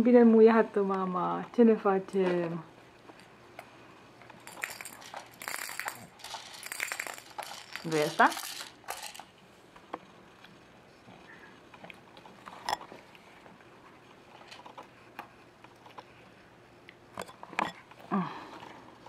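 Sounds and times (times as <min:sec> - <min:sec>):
small hard objects clicking: 0:04.4 - 0:09.3.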